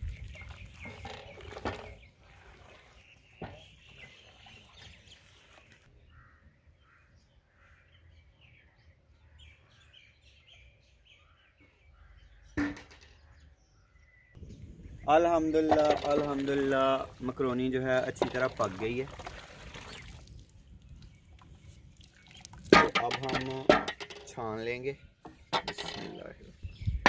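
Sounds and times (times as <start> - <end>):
small birds chirping: 0.0 - 23.7, 24.3 - 27.0.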